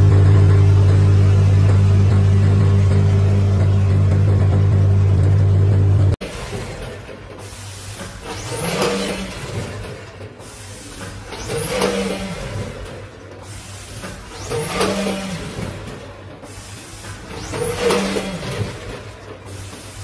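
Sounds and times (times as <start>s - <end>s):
packing machinery running: 0.0s - 20.0s
steady machine hum: 0.0s - 20.0s
motor speeding up and slowing down: 17.3s - 19.0s.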